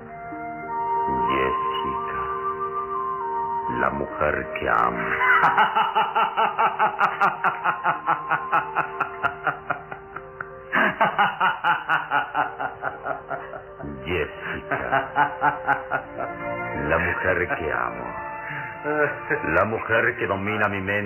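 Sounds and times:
dramatic music with held tones: 0.0 - 21.0
rapid pulsing laughter: 5.0 - 13.8.

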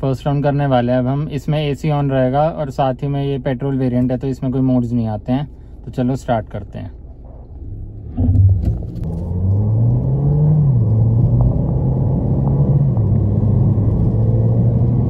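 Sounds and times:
car engine accelerating: 7.6 - 15.0.

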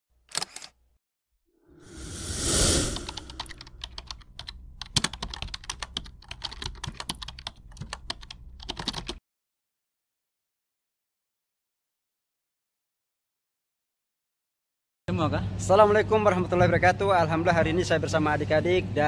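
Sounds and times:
whoosh: 1.7 - 3.7
rapid sharp clicks: 3.0 - 9.2.

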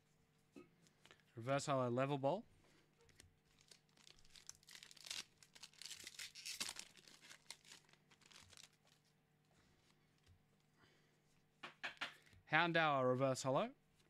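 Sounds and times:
foil wrapper crinkling and tearing: 3.0 - 9.1
cards rustling: 3.1 - 9.1.

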